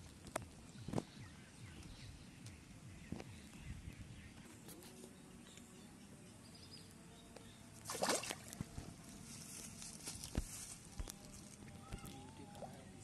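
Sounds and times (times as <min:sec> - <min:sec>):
fish splashing in water: 0:07.8 - 0:08.6.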